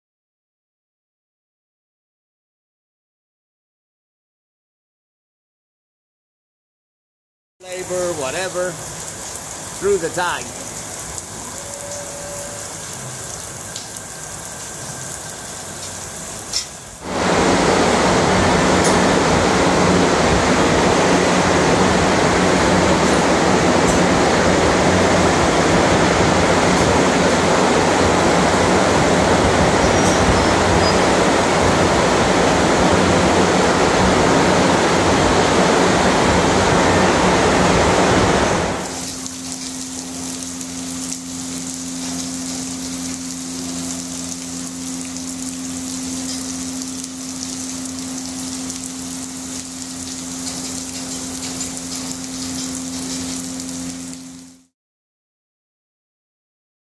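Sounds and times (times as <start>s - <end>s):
water dripping: 7.6s - 17.0s, 38.8s - 54.3s
water spray hissing: 7.6s - 19.4s, 38.7s - 54.2s
large fans rushing: 13.2s - 44.7s.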